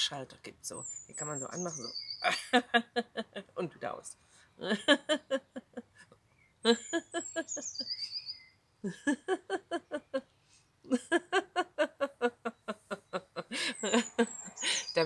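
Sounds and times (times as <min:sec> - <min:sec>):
woman laughing out loud: 0:02.3 - 0:03.5, 0:04.6 - 0:06.0, 0:06.6 - 0:08.0, 0:08.8 - 0:10.2, 0:10.9 - 0:15.0.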